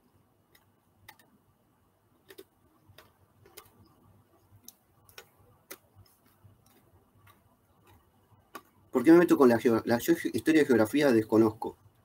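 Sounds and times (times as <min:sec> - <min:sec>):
faint regular ticking: 0:00.4 - 0:01.4, 0:02.2 - 0:09.4.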